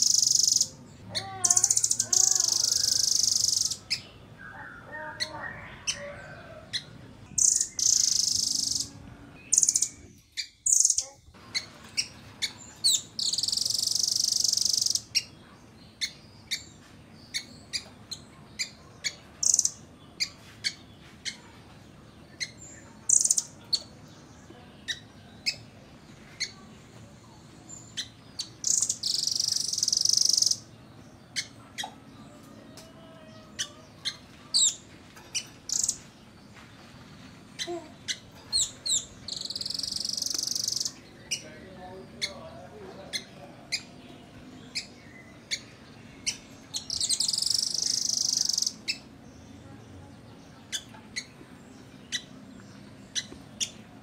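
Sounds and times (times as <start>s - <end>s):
bird high-pitched trills: 0.0s - 15.3s, 37.6s - 41.5s, 45.5s - 49.0s.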